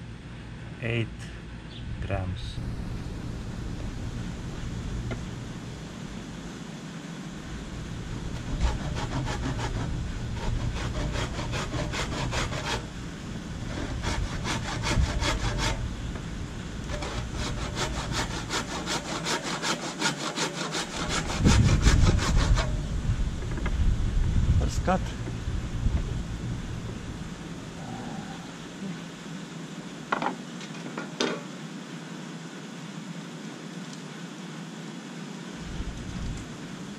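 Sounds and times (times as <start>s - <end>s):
loud low rumble: 0.0s - 6.6s, 21.3s - 28.8s
hand saw cutting wood: 8.4s - 12.9s, 13.6s - 15.8s, 16.9s - 22.8s.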